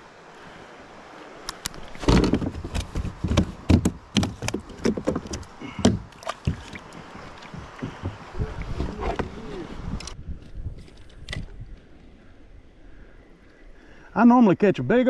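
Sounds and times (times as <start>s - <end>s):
knocks on plastic kayak hull: 2.0s - 6.8s, 7.4s - 8.4s.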